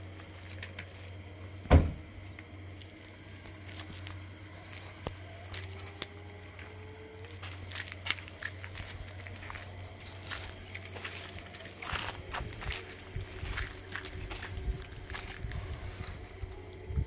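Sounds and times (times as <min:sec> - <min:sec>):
crickets chirping: 0:00.0 - 0:17.0
dull thump: 0:01.7 - 0:02.1.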